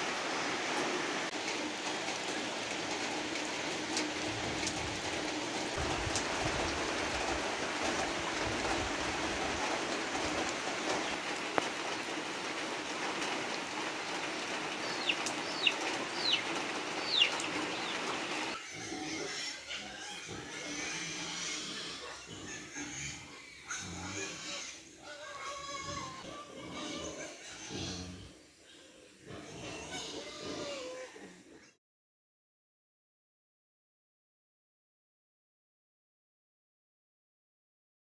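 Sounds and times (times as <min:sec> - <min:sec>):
heavy rain on foliage: 0:00.0 - 0:18.6.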